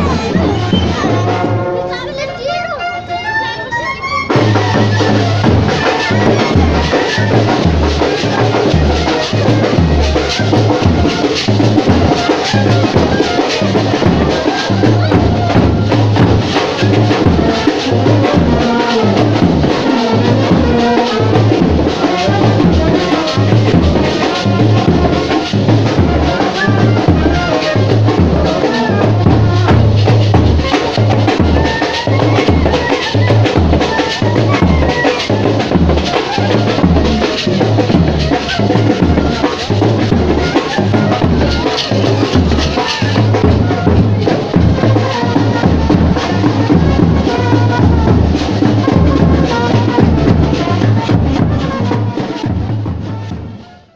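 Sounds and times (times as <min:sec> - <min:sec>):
music with steady drum beat: 0:00.0 - 0:53.9.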